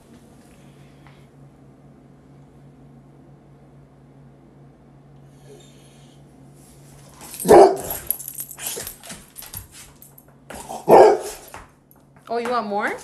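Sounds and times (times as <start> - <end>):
dog barking loudly: 7.4 - 8.1, 10.8 - 11.5.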